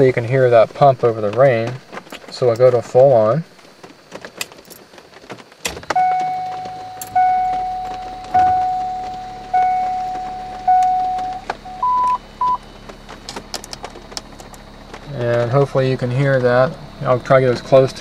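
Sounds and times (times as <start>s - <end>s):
faint low pump hum: 0.0s - 5.0s, 5.6s - 18.0s
rain ticking on car: 0.0s - 18.0s
car warning chime: 5.9s - 12.7s, 15.6s - 18.0s
short high beeps: 6.0s - 12.6s.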